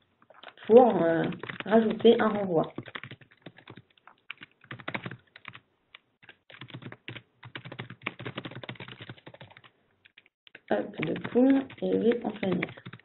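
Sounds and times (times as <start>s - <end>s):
typing on a keyboard: 0.4s - 5.6s, 6.2s - 13.0s.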